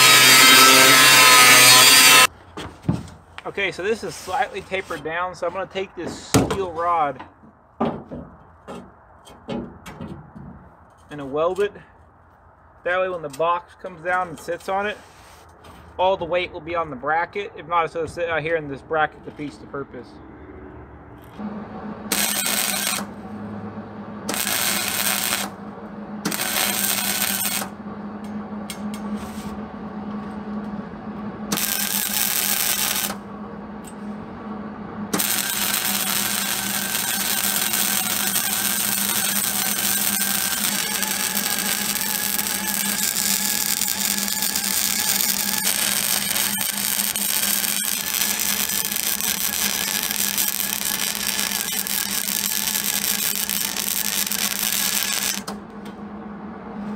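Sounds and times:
welder crackling: 0.0s - 2.3s, 22.1s - 23.2s, 24.2s - 27.8s, 31.5s - 33.2s, 35.1s - 55.6s
steady low hum: 10.6s - 56.9s.

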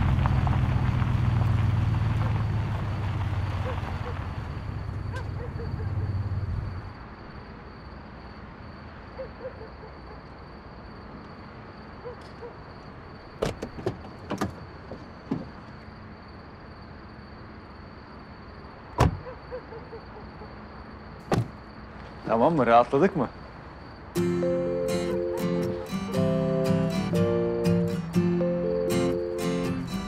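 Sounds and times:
car engine running low: 0.0s - 7.0s
car door shutting: 13.4s - 15.6s, 19.0s - 19.2s, 21.2s - 21.6s.

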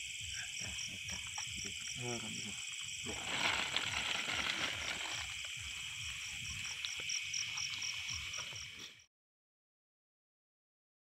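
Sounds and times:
crickets and insects trilling: 0.0s - 9.1s
footsteps in grass: 3.0s - 6.0s
rustling through grass: 3.0s - 6.2s.

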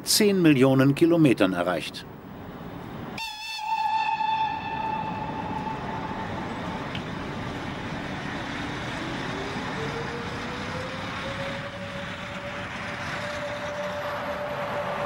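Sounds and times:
electric locomotive passing: 3.2s - 15.0s.

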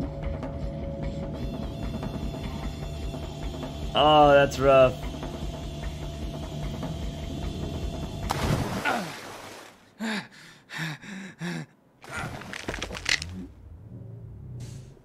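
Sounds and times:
cartoon background music: 0.0s - 8.2s
short gasps: 10.0s - 12.4s.

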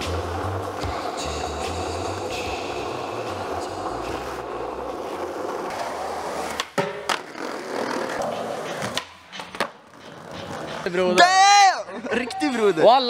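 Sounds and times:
skateboard wheels rolling: 0.0s - 11.0s
skateboard clacking on ground: 4.4s - 11.4s.

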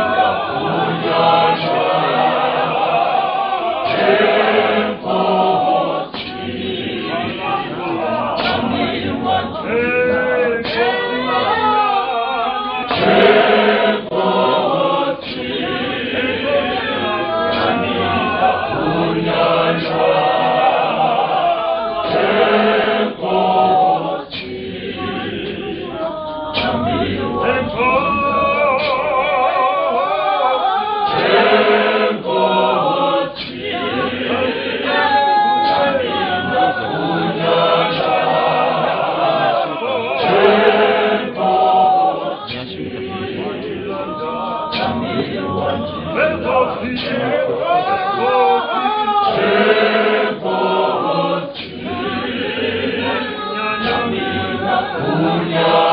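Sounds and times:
choir singing a hymn: 0.0s - 55.9s.

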